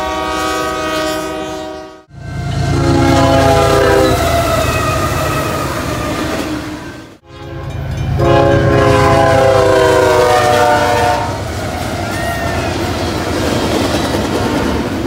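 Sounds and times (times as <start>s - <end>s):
locomotive air horn blast: 0.0s - 11.4s
freight train rumbling past: 0.0s - 15.0s.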